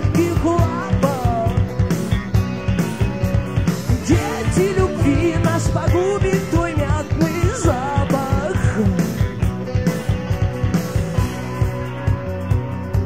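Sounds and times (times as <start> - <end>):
man singing: 0.0 - 1.7, 4.0 - 9.4
rock band playing: 0.0 - 13.0.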